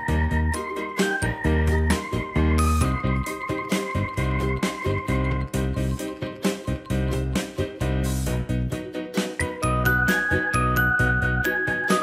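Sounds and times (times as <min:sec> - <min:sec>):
steady beat and bass line: 0:00.0 - 0:12.0
chiming bell-like notes: 0:09.5 - 0:12.0.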